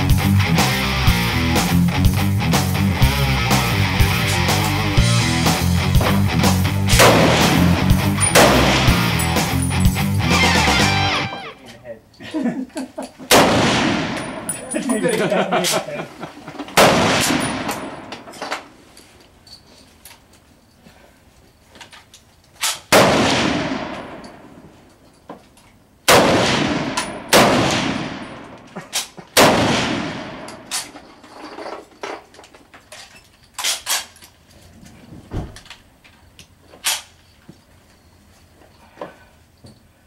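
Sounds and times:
loud rifle shots: 0:06.9 - 0:09.6, 0:13.3 - 0:14.5, 0:16.8 - 0:18.2, 0:22.9 - 0:24.5, 0:26.1 - 0:28.6, 0:29.3 - 0:30.7.

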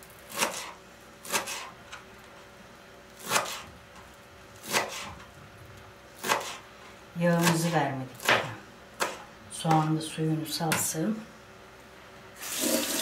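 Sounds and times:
knife chopping on plastic board: 0:03.2 - 0:03.7, 0:04.6 - 0:05.2, 0:06.2 - 0:06.6, 0:07.4 - 0:09.8.

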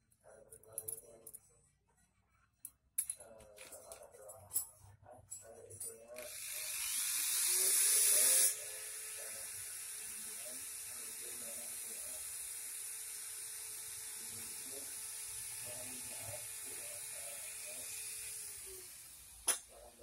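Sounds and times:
faint distant voices: 0:03.0 - 0:12.3, 0:13.9 - 0:20.0.

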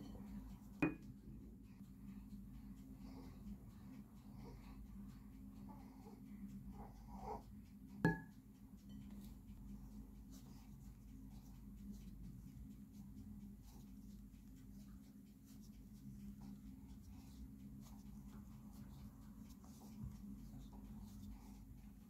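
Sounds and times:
low steady hum: 0:00.0 - 0:22.0
clink on glass bowl: 0:00.8 - 0:01.0, 0:08.1 - 0:08.3.

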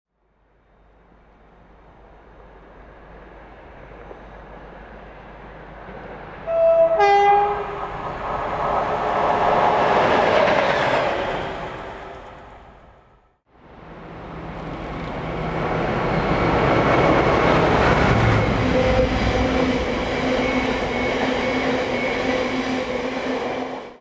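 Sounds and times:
two-tone locomotive horn: 0:06.4 - 0:08.0, 0:18.2 - 0:22.1
locomotive engine and wheel noise: 0:07.5 - 0:24.0.

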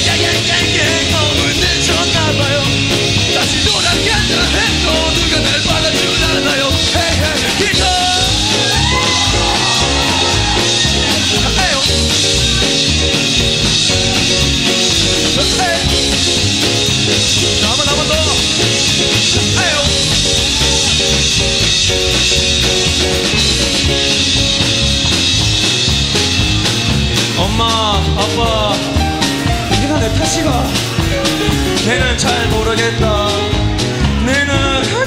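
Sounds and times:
person singing: 0:00.0 - 0:16.4, 0:17.6 - 0:21.4, 0:27.3 - 0:35.0
bass guitar: 0:00.0 - 0:35.0
drum kit: 0:00.0 - 0:35.0
electric guitars: 0:00.0 - 0:35.0.

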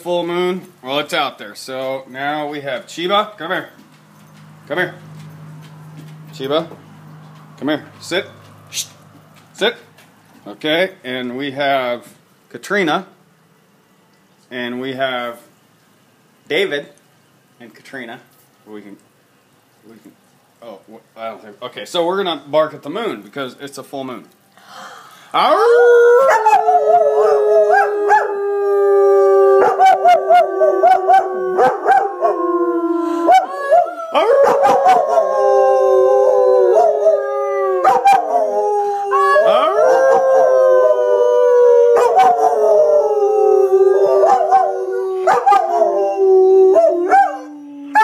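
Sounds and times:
dog howling: 0:25.4 - 0:48.0
people howling: 0:25.4 - 0:48.0.

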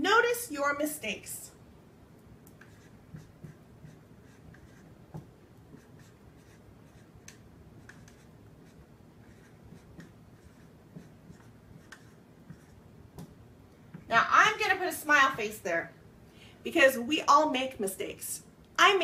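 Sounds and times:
marker squeaking on whiteboard: 0:02.6 - 0:12.8.

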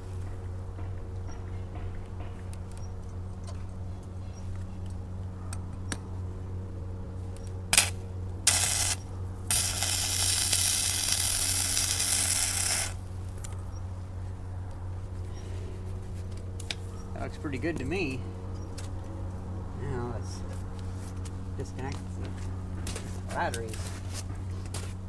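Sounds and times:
steady low hum: 0:00.0 - 0:25.0
welding arc crackling: 0:07.7 - 0:13.5.

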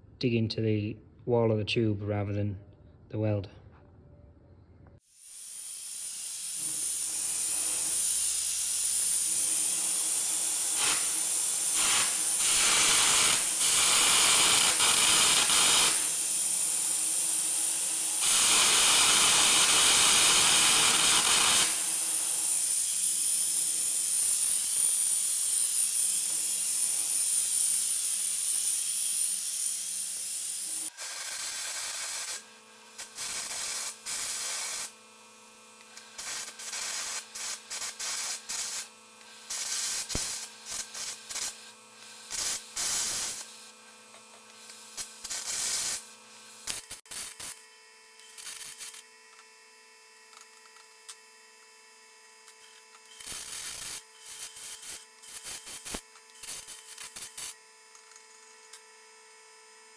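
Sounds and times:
short bursts of hiss: 0:05.0 - 0:17.6, 0:18.2 - 0:32.4, 0:33.0 - 0:34.9, 0:35.9 - 0:43.7, 0:44.6 - 0:47.6, 0:53.1 - 0:57.6
arc gouging hiss: 0:05.0 - 0:32.4, 0:33.0 - 0:34.9, 0:35.9 - 0:43.7, 0:44.6 - 0:46.0.

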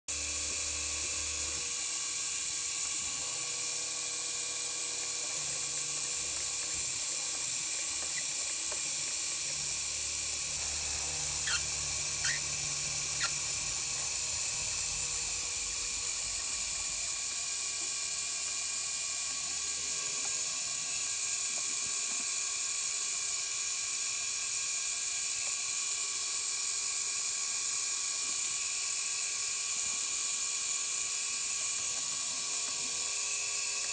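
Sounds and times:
router spindle high whine: 0:00.1 - 0:33.9
low stepper motor hum: 0:05.2 - 0:18.0.

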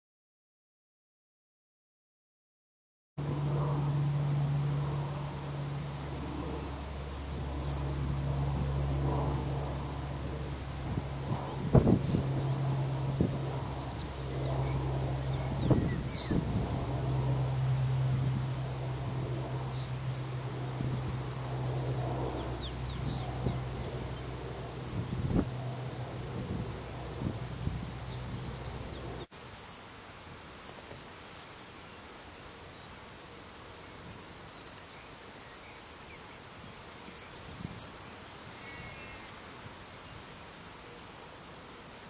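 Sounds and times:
low wind rumble: 0:03.2 - 0:29.3
steady low hum: 0:03.2 - 0:29.3
yellowhammer singing: 0:06.0 - 0:08.0, 0:11.4 - 0:16.6, 0:19.4 - 0:29.2, 0:34.5 - 0:40.9
bird chirping: 0:07.6 - 0:07.9, 0:12.0 - 0:12.6, 0:13.9 - 0:16.4, 0:19.7 - 0:20.0, 0:22.4 - 0:24.3, 0:28.0 - 0:29.2, 0:36.2 - 0:40.8.

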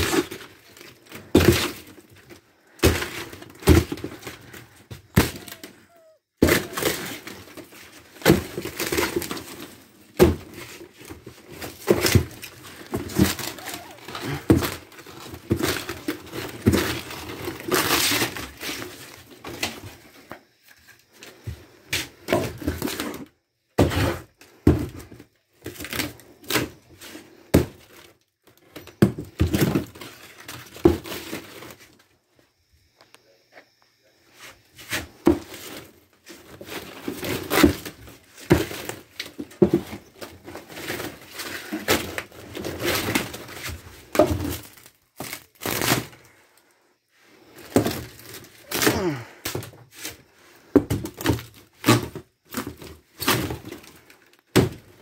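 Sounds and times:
wood paneling being torn out: 0:36.8 - 0:46.2.

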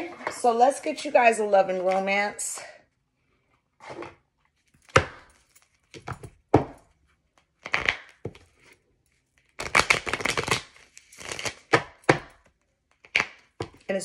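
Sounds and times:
cards shuffling rustle: 0:09.4 - 0:11.8.

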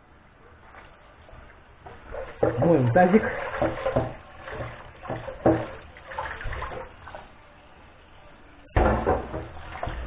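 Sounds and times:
tap water splashing into sink: 0:02.3 - 0:07.3, 0:08.8 - 0:10.0.

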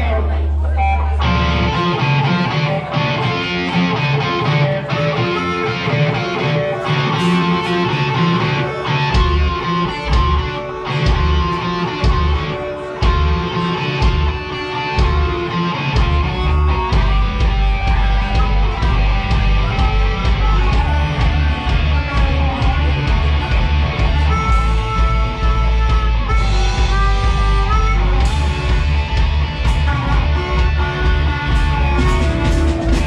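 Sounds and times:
drums: 0:00.0 - 0:33.0
electric guitar: 0:00.0 - 0:33.0
deep bass notes: 0:09.1 - 0:33.0.

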